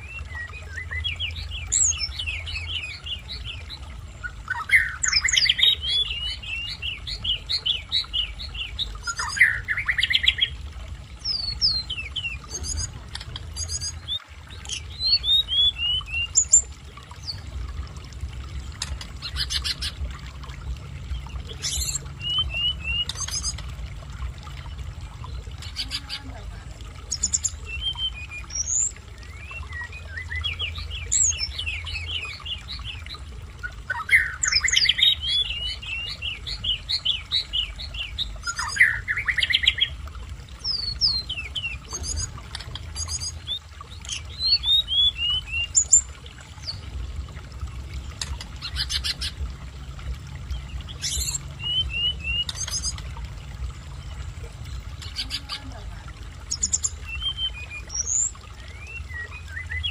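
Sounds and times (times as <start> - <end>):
bird singing high chirps: 21.5 - 23.6.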